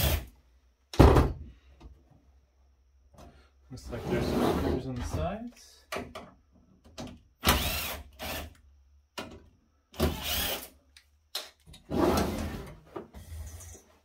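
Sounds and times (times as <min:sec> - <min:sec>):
electric screwdriver running: 0:10.1 - 0:10.6.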